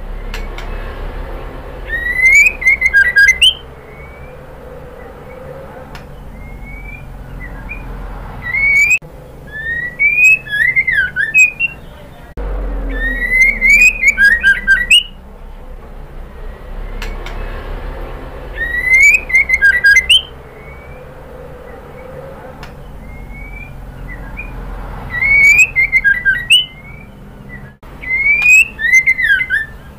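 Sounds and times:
steady low hum: 0.0s - 29.9s
bird singing whistles: 1.9s - 4.4s, 5.9s - 12.0s, 12.9s - 15.2s, 18.6s - 21.1s, 23.0s - 29.9s.

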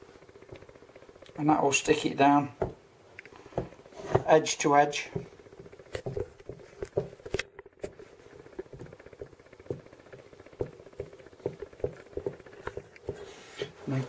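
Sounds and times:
thumb tapping pastry edge: 2.6s - 2.8s, 5.0s - 8.0s, 8.6s - 13.3s.

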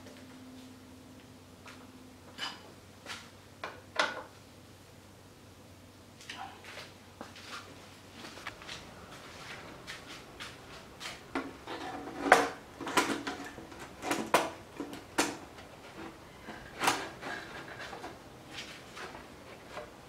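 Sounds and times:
plastic cover clicking and clacking: 11.4s - 15.4s.

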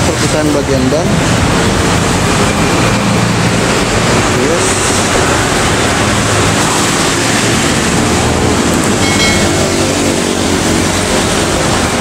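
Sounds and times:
short high-pitched tone: 9.0s - 10.0s.

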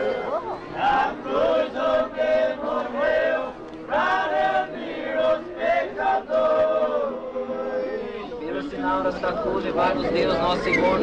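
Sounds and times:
men singing chant together: 0.8s - 8.4s.

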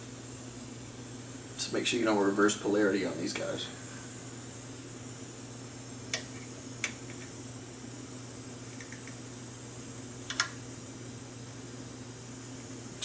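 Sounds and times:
steady hiss: 0.0s - 13.0s
small clicks of tools: 10.3s - 10.6s.

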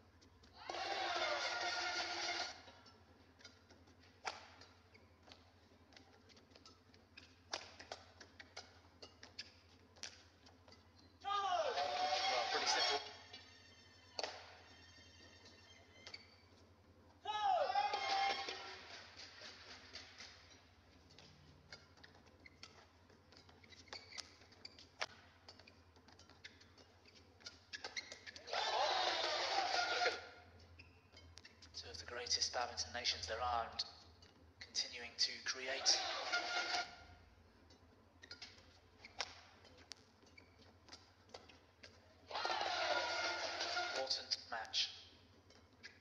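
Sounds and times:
shoes squeaking on court: 0.0s - 17.2s, 17.8s - 32.5s, 33.1s - 46.0s
rackets hitting shuttlecock: 0.7s - 10.9s, 14.2s - 14.5s.

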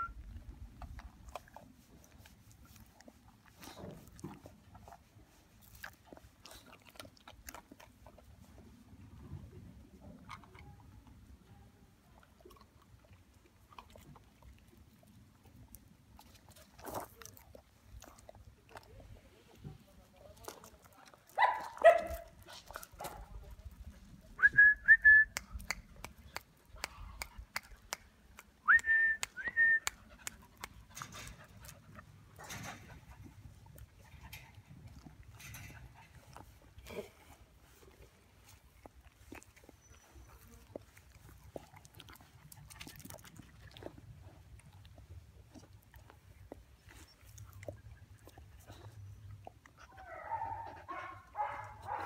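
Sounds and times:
person whistling: 24.4s - 25.4s, 28.7s - 29.9s.

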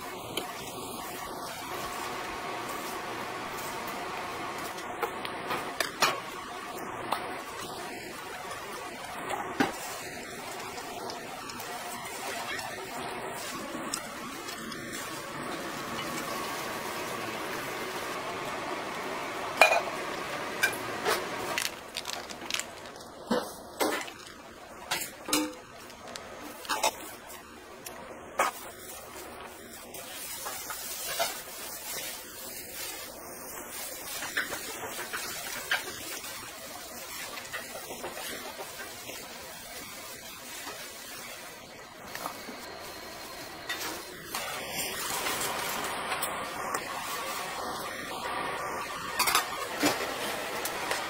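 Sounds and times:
wet cabbage rustling and squelching: 21.4s - 24.4s.

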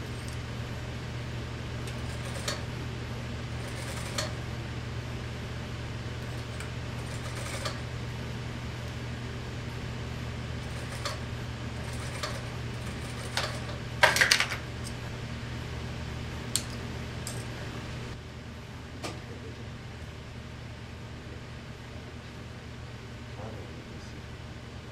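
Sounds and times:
sewing machine motor humming: 0.0s - 4.8s, 5.8s - 8.1s, 10.4s - 14.1s.

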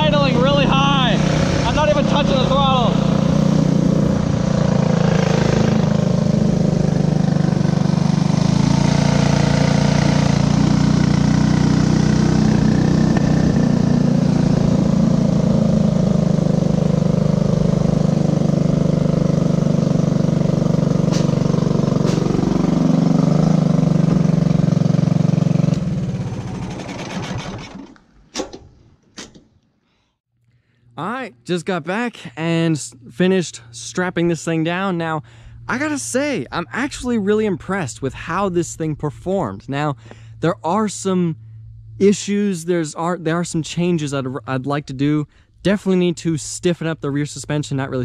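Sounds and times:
engines winding down: 0.0s - 28.0s
go-kart engines running: 0.0s - 28.0s.

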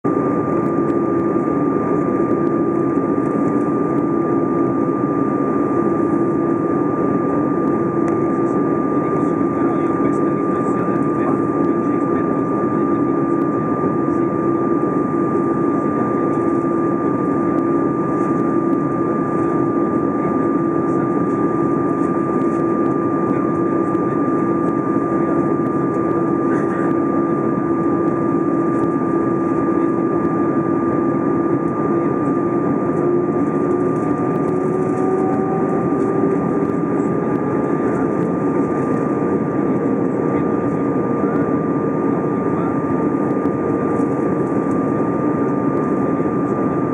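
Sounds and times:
jet engine whine: 0.0s - 46.9s
airliner cabin air rush: 18.0s - 46.7s
low hum rising in pitch: 30.5s - 37.8s.

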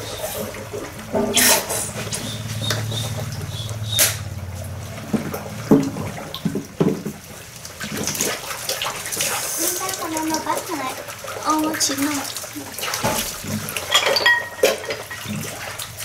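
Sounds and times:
low steady hum: 0.0s - 16.0s
water splashing and trickling: 0.0s - 16.0s
dishes clinking: 13.0s - 15.5s.

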